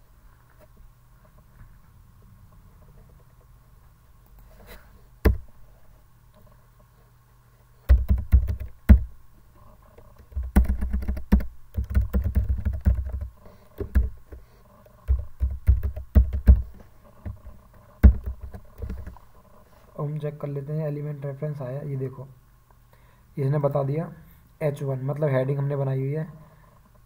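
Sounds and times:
typing on computer keyboard: 0:07.9 - 0:09.1, 0:10.0 - 0:14.4, 0:15.0 - 0:19.2.

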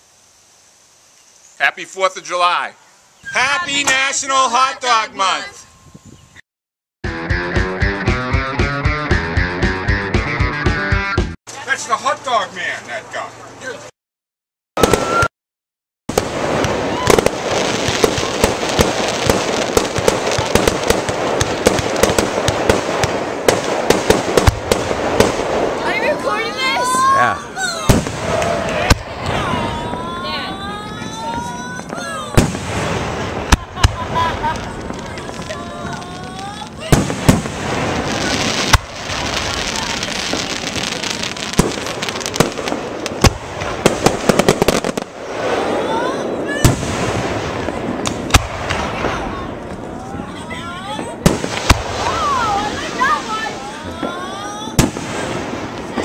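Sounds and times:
steady hiss: 0:00.0 - 0:05.0
fireworks popping and banging: 0:03.3 - 0:04.2, 0:14.8 - 0:15.3, 0:16.1 - 0:27.0, 0:27.7 - 0:56.0.

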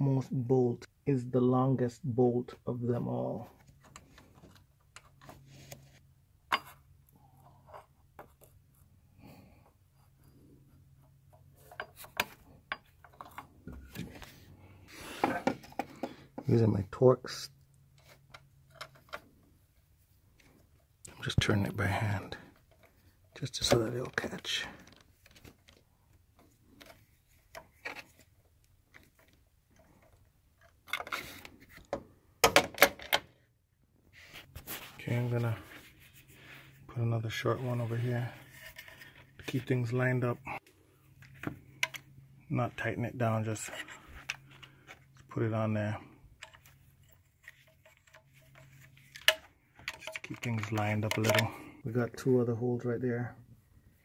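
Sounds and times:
light clicks and taps of tools: 0:46.4 - 0:51.7
metallic clicks of pliers and bolt: 0:49.2 - 0:51.5.

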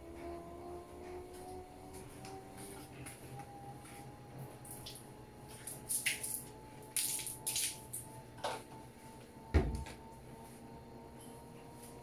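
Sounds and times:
washing machine motor whine: 0:00.0 - 0:12.0
loud thump: 0:09.5 - 0:09.8.

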